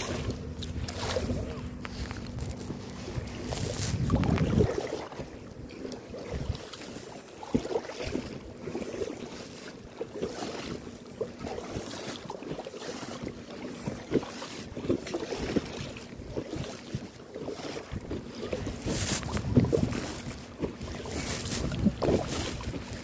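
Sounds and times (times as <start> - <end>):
wind buffeting microphone: 0.0 - 7.0, 14.9 - 23.0
paddles splashing in water: 0.0 - 23.0.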